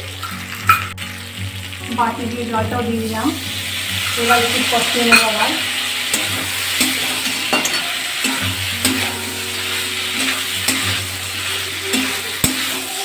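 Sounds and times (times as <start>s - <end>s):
vegetables sizzling in hot oil: 0.0s - 13.0s
metal spatula scraping pan: 4.0s - 13.0s.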